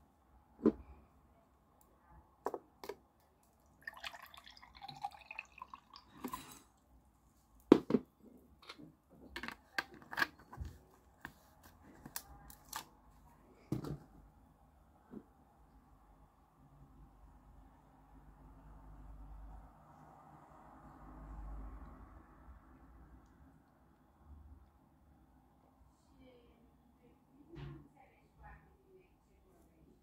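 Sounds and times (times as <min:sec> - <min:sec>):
drink pouring into glass: 0:03.7 - 0:06.7.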